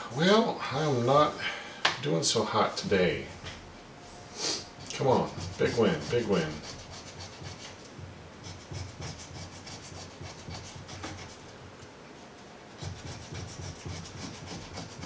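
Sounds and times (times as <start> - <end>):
coin scratching lottery ticket: 4.8 - 7.7, 8.4 - 11.4, 12.8 - 15.0.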